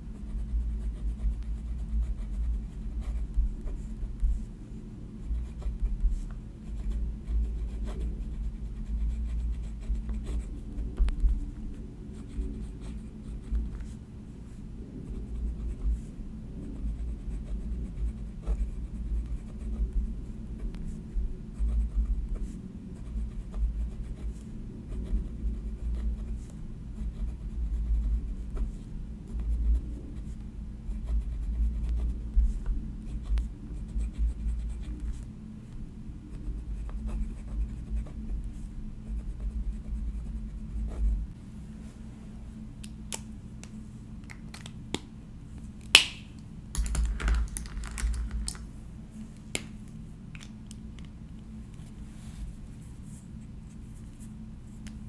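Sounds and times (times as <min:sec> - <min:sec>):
pen scratching on paper: 0:00.2 - 0:04.5, 0:05.2 - 0:11.4, 0:12.2 - 0:16.1, 0:16.7 - 0:19.9, 0:21.6 - 0:32.6, 0:33.2 - 0:35.2, 0:36.3 - 0:41.1.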